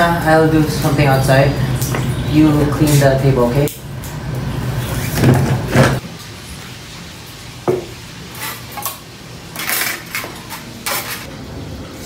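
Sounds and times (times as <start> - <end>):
plates and cutlery clattering: 9.6 - 11.3.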